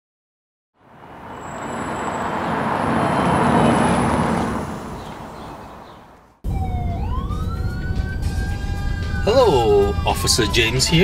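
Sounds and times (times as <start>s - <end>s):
police siren wailing: 6.4s - 11.0s.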